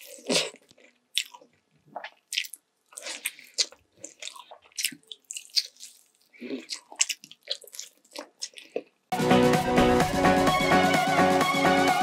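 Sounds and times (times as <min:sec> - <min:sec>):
person biting and chewing: 0:00.0 - 0:09.1.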